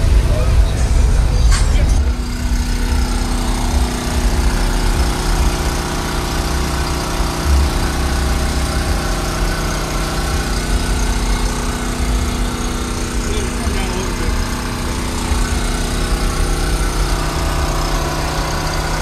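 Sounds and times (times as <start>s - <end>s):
portable generator running: 0.0s - 19.0s.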